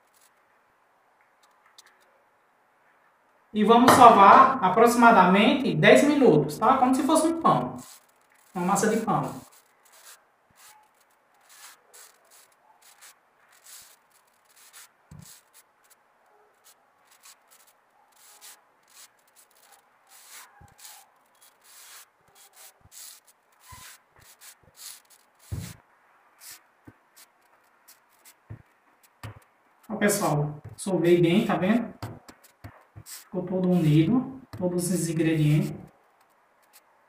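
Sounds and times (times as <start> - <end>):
hands kneading dough: 31.7 - 34.9.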